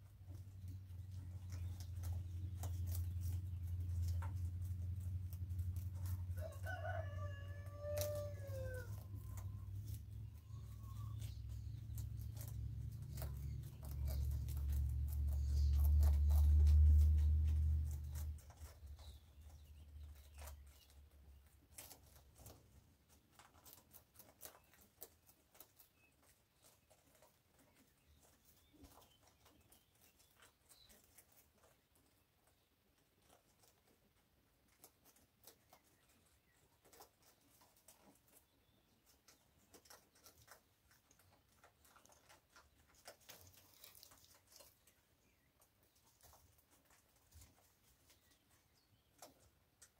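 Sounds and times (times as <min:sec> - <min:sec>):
rabbits crunching dry food: 0:00.0 - 0:49.9
rooster crowing: 0:06.3 - 0:09.2
low rumble: 0:09.2 - 0:20.2.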